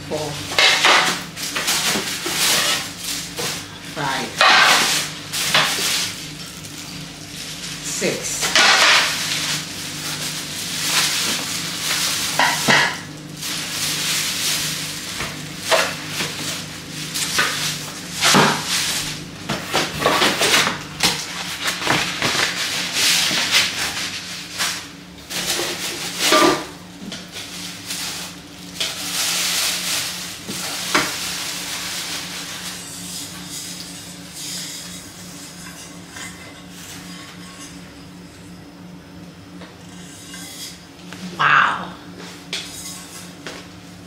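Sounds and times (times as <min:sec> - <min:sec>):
plastic wrap crinkling: 0:01.1 - 0:18.0, 0:21.2 - 0:26.2, 0:27.1 - 0:33.8.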